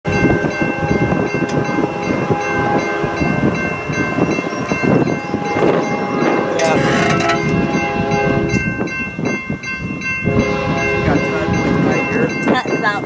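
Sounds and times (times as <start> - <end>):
crossing bell ringing: 0.0 - 13.0
locomotive horn: 0.7 - 8.7, 10.3 - 12.2.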